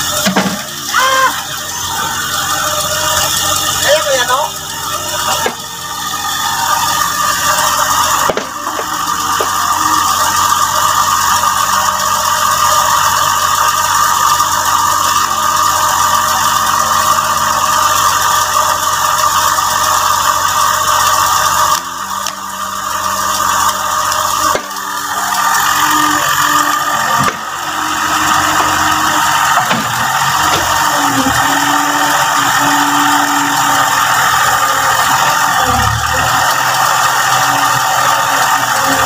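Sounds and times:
excavator diesel engine running: 0.0s - 39.0s.

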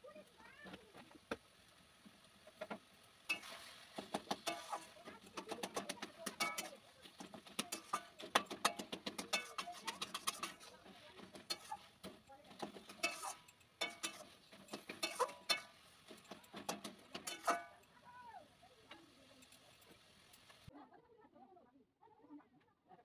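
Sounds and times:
metal spatula scraping a pan: 2.3s - 20.7s.

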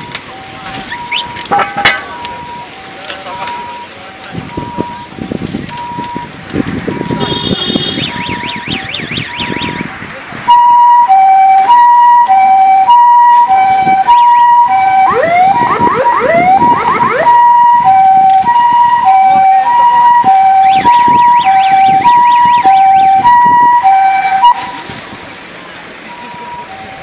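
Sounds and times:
police siren two-tone: 0.0s - 6.3s, 6.9s - 9.9s, 10.5s - 24.8s, 26.1s - 27.0s
siren rising whoops: 8.0s - 9.8s, 10.5s - 24.8s
siren fast high warble: 10.5s - 24.8s.

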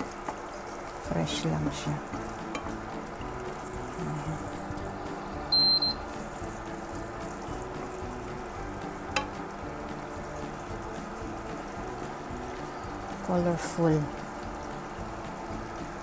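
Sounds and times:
background music: 0.0s - 16.0s
spatula stirring in wok: 2.0s - 13.4s
spatula clacking on pan: 2.4s - 2.9s, 9.0s - 9.5s
high electronic beep: 5.5s - 6.1s.

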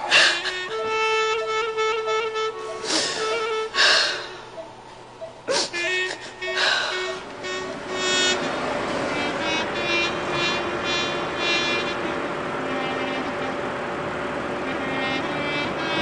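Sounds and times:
repeating high-pitched tone: 0.1s - 8.8s
car driving slowly: 6.5s - 16.0s.

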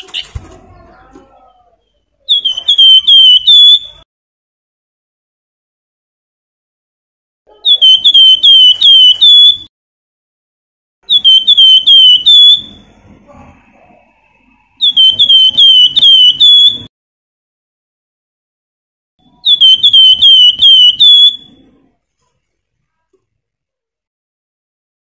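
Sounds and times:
bird singing whistled notes: 1.8s - 4.0s, 11.1s - 12.8s, 14.8s - 16.9s, 19.3s - 21.7s.

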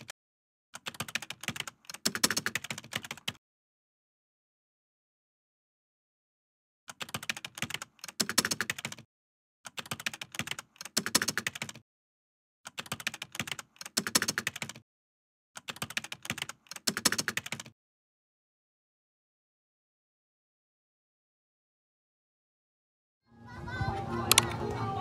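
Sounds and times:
keyboard typing: 0.8s - 3.4s, 6.9s - 9.1s, 9.7s - 11.8s, 12.6s - 14.8s, 15.6s - 17.8s, 24.3s - 24.7s.

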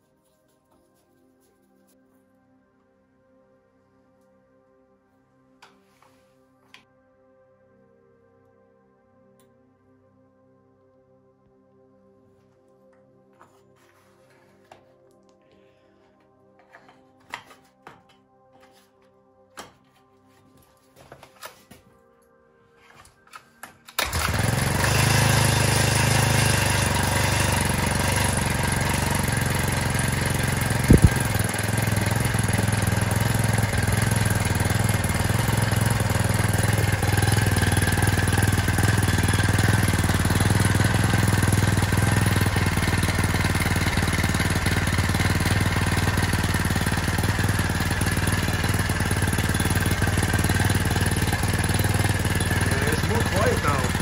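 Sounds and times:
outboard motor running: 24.0s - 54.0s.

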